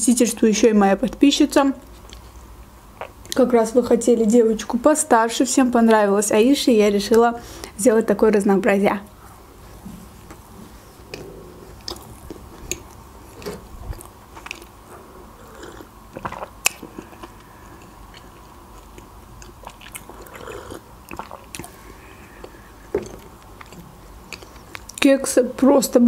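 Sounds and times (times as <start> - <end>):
chewing cupcake: 11.0 - 25.0
wet mouth clicks and smacks: 21.1 - 21.8.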